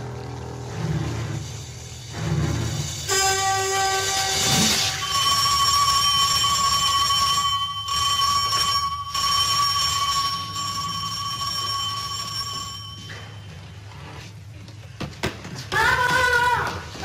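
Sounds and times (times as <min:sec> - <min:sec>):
electric bell ringing: 0:02.8 - 0:13.8.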